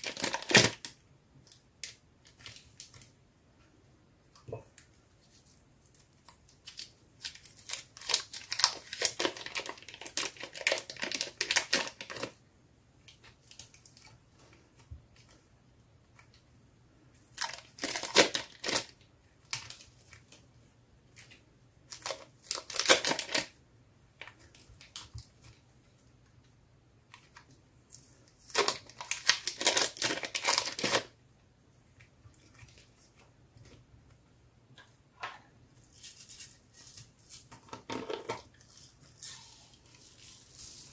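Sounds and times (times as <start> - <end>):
plastic wrap crinkling: 0.0 - 3.2, 5.2 - 12.4, 17.3 - 20.4, 21.1 - 23.6, 27.1 - 31.2.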